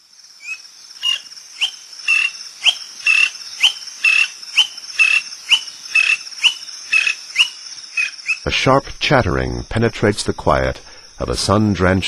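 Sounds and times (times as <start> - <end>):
high buzz of insects: 0.0 - 12.0
bird calling sharp notes: 0.4 - 8.5.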